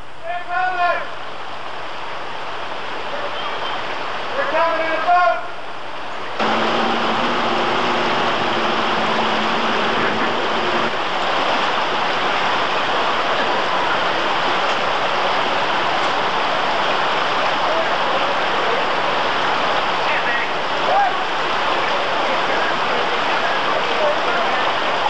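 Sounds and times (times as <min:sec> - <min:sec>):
floodwater rushing: 0:01.0 - 0:25.0
low drone: 0:06.4 - 0:11.1.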